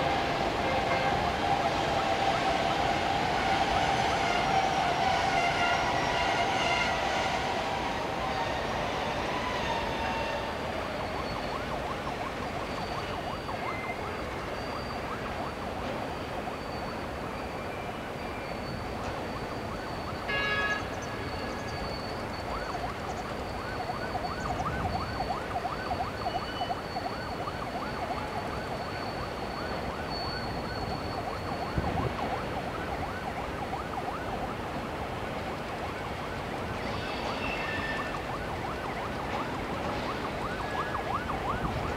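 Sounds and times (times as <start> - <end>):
freight train rumbling on bridge: 0.0 - 41.9.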